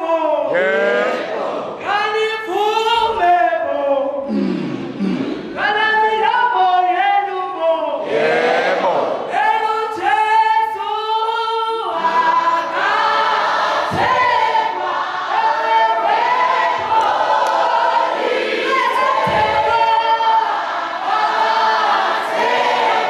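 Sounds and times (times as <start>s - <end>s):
voices singing along: 0.0s - 3.4s, 5.6s - 23.0s.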